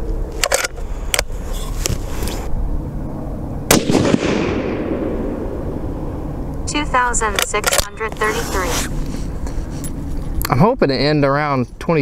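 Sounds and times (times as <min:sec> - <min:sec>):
rifle shot with echo: 0:03.7 - 0:05.8.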